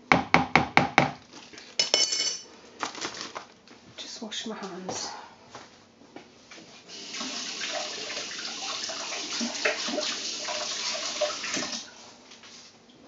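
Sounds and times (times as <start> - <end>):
water tap running: 6.9 - 11.9.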